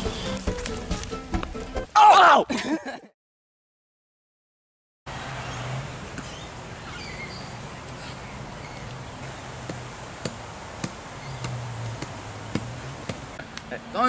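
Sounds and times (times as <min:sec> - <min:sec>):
steady outdoor hiss: 0:00.0 - 0:01.8, 0:05.1 - 0:14.0
faint bird chirps: 0:06.2 - 0:09.0.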